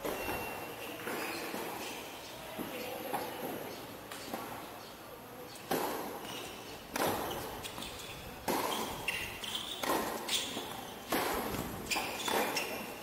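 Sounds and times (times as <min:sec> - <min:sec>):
short high shoe squeaks: 0:00.0 - 0:02.1, 0:06.2 - 0:13.0
tennis ball struck by rackets: 0:06.9 - 0:07.8, 0:08.4 - 0:12.8.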